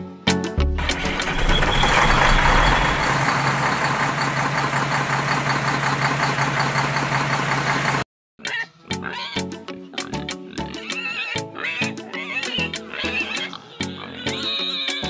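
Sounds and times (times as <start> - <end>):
tractor engine running: 0.8 - 8.0.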